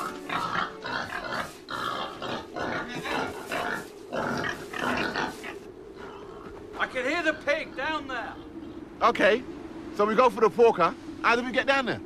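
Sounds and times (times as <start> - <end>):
pig grunting: 0.0 - 6.3.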